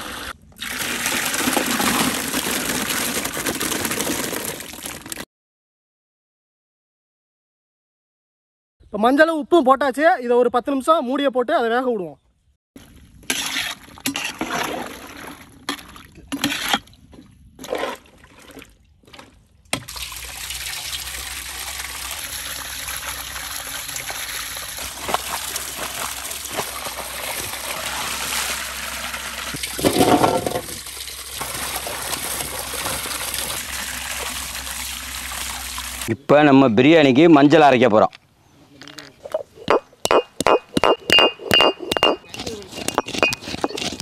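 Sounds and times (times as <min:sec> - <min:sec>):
water splashing in a metal basin: 0:00.6 - 0:05.2, 0:17.6 - 0:36.1.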